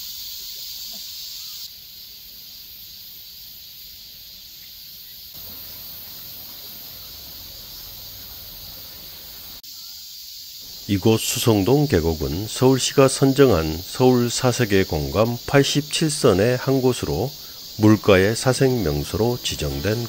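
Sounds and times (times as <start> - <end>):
insects buzzing: 0.0 - 20.0
stream water flowing: 5.4 - 9.6.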